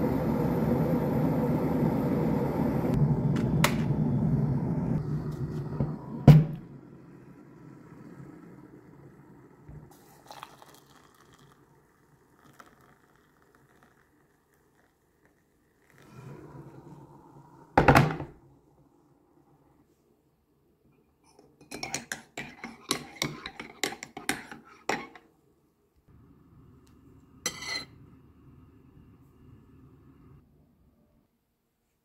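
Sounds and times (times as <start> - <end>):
water poured into a mug: 7.8 - 17.0.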